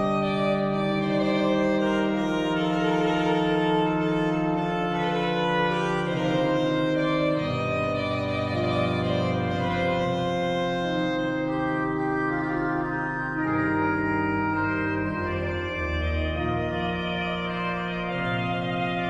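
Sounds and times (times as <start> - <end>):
slow pipe organ melody: 0.0 - 19.0.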